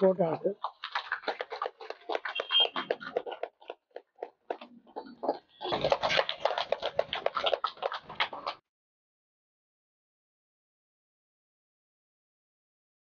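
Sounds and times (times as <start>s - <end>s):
small group clapping: 0.7s - 8.6s.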